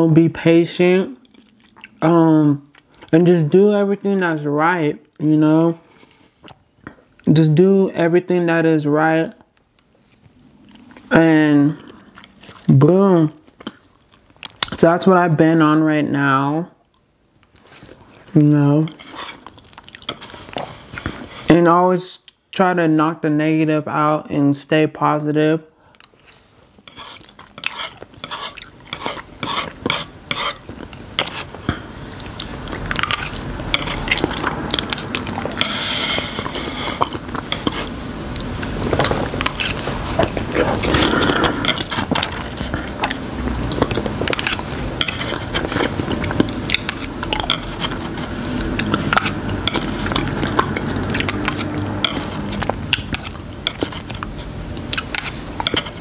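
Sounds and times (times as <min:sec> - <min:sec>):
chewing and mouth sounds: 0:01.1 - 0:03.2, 0:06.0 - 0:07.3, 0:10.0 - 0:12.8, 0:13.4 - 0:14.8, 0:16.8 - 0:18.3, 0:18.9 - 0:21.5, 0:25.9 - 0:56.0.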